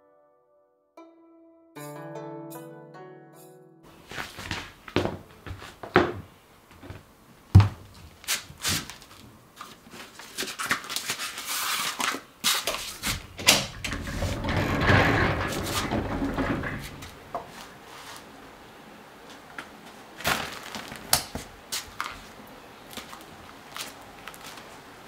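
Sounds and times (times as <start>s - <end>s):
footsteps on hard floor: 4.0s - 9.2s
sharp knocks on floor: 7.6s - 7.9s
sliding glass door rumbling: 12.9s - 17.6s.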